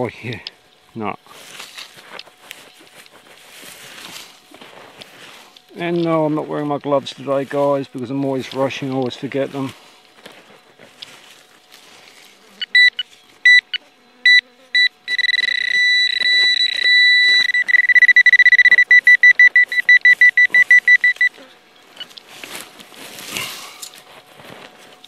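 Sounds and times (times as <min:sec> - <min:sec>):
metal detector beeping: 0:12.6 - 0:22.6.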